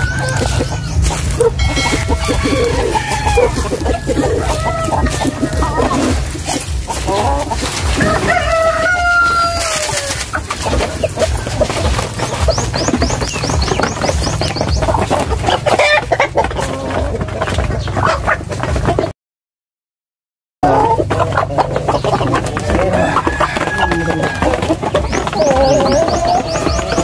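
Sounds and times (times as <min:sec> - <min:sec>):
rooster crowing: 0:00.0 - 0:12.0, 0:22.6 - 0:27.0
chickens clucking: 0:00.0 - 0:19.1, 0:20.6 - 0:27.0.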